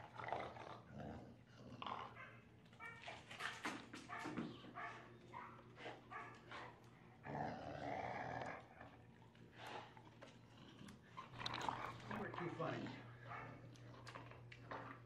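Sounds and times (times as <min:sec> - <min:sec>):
dog growling in play: 0:00.0 - 0:02.3, 0:06.6 - 0:15.0.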